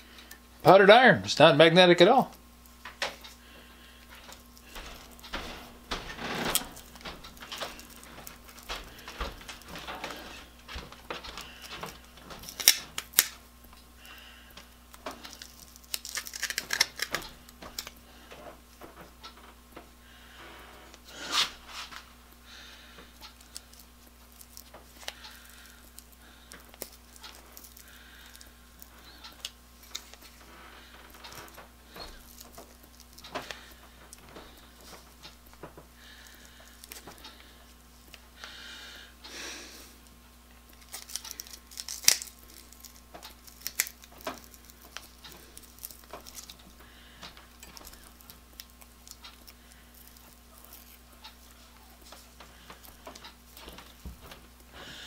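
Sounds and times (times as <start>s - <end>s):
pliers crunching plastic: 4.0s - 18.1s, 40.7s - 54.5s.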